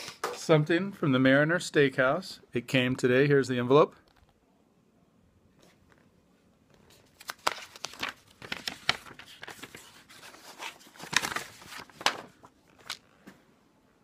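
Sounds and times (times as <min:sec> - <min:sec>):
paper envelope tearing open: 0:07.1 - 0:13.0.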